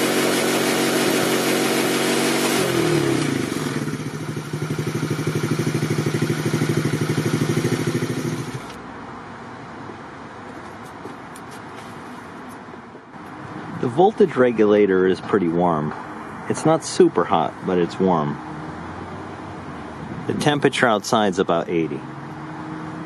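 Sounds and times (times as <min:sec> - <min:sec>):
atv engine revving and idling: 0:00.0 - 0:08.8.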